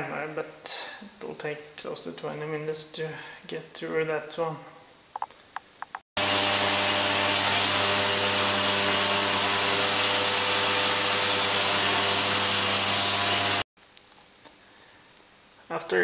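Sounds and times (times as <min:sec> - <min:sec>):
motor hum: 0:06.2 - 0:13.6
electric machine hissing: 0:06.2 - 0:13.7.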